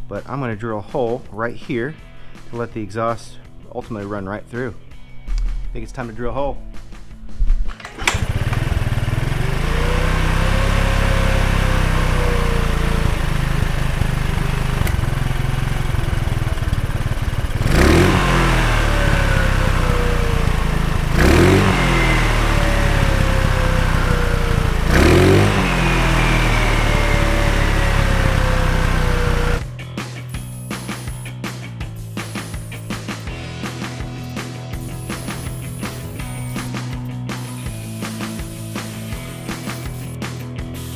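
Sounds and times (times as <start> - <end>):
scooter engine idling and revving: 7.8 - 31.3, 32.0 - 34.1, 34.7 - 40.9.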